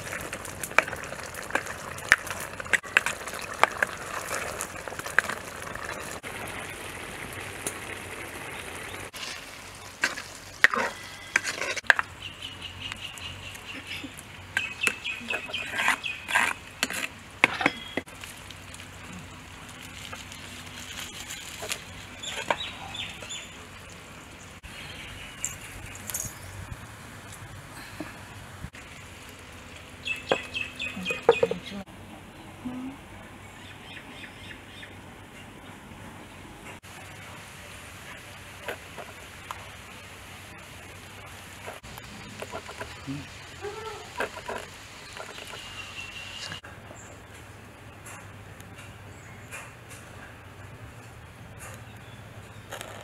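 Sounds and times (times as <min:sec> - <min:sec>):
curry sizzling in a pot: 0:00.0 - 0:24.7, 0:36.8 - 0:46.6
ladle scraping and knocking pot: 0:10.0 - 0:12.0, 0:14.6 - 0:18.0
bird calling: 0:30.0 - 0:31.9.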